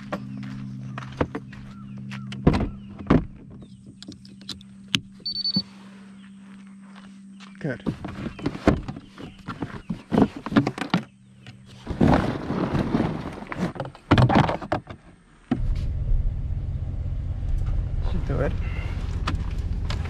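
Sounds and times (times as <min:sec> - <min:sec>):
truck engine drone: 0:00.0 - 0:06.7, 0:15.5 - 0:20.0
gear clicking and clunking: 0:17.4 - 0:20.0.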